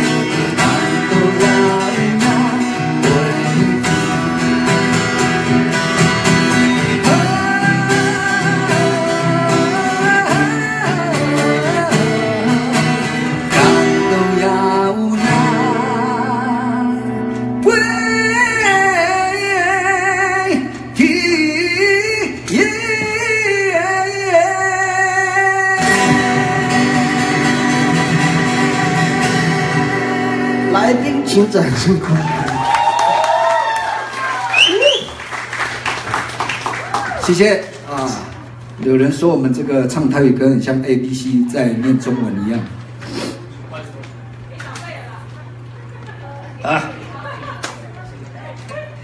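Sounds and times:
man singing a ballad: 0.0 - 4.6, 7.0 - 31.6
acoustic guitars strummed: 0.0 - 32.3.

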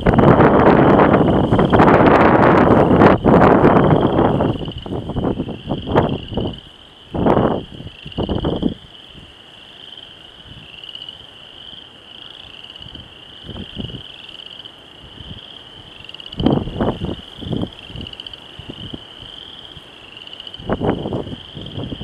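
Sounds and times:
frogs trilling: 0.0 - 22.0.

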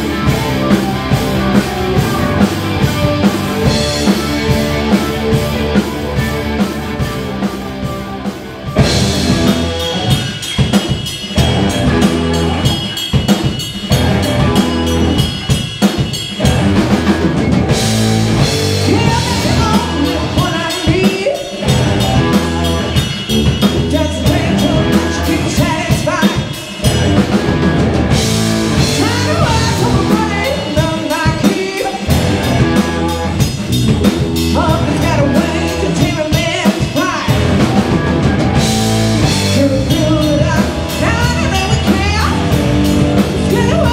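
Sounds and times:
bass guitar: 0.0 - 43.9
drum kit beat: 0.0 - 43.9
electric guitars: 0.0 - 43.9
woman singing lead: 18.8 - 23.1, 23.7 - 26.7, 28.8 - 33.4, 34.5 - 38.0, 39.3 - 42.6, 43.4 - 43.9.

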